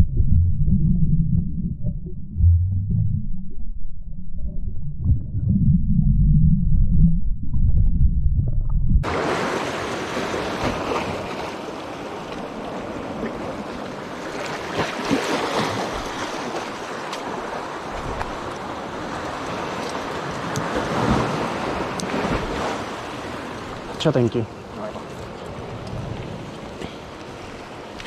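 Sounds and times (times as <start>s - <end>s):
underwater rumble of moving water: 0.0s - 10.6s
surf breaking over rocks: 9.0s - 24.2s.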